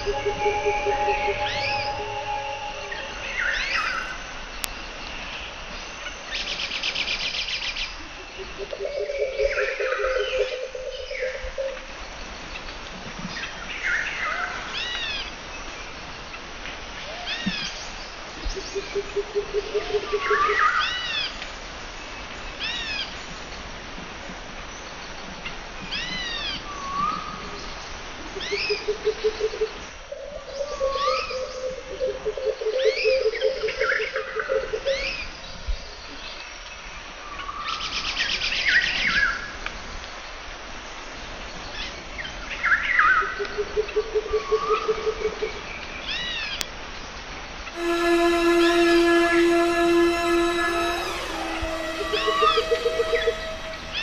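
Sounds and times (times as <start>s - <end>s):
low fast pulsing bird trill: 0.0s - 4.2s.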